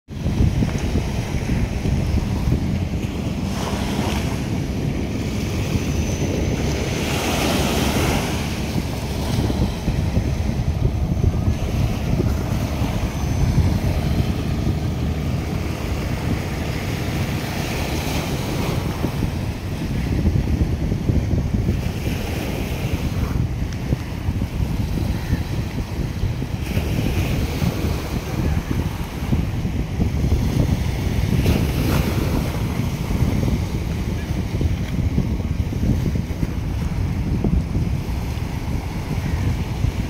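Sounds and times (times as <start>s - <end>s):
water washing against shore: 0.1s - 40.0s
wind buffeting microphone: 0.1s - 40.0s.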